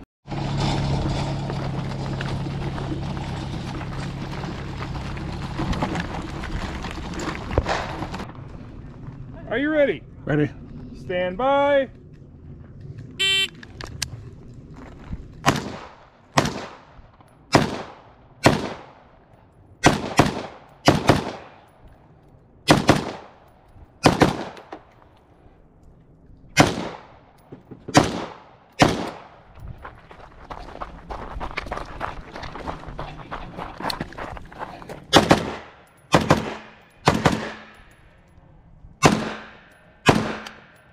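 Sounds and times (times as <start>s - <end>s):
gunshots with short echo: 15.4s - 19.1s, 19.8s - 21.6s, 24.0s - 24.7s, 26.6s - 29.4s, 35.1s - 37.8s, 39.0s - 40.8s.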